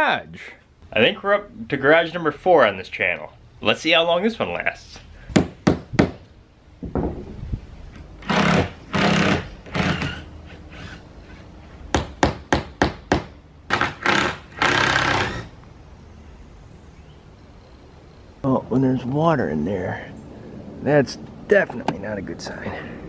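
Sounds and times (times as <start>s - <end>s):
hammer knocking: 5.3s - 6.2s
cordless drill bursts: 8.2s - 11.0s, 13.7s - 15.5s.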